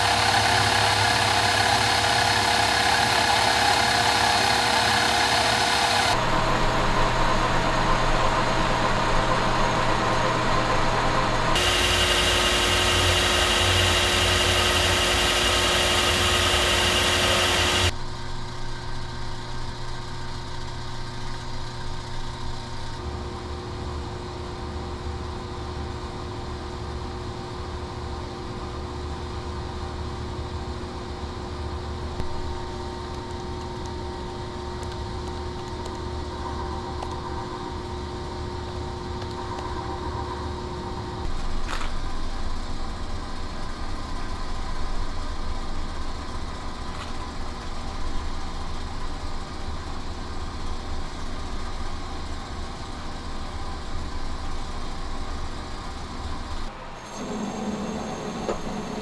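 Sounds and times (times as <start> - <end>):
lathe cutting steel hiss: 0.0 - 17.9, 56.7 - 59.0
lathe motor hum: 0.0 - 18.0, 56.7 - 59.0.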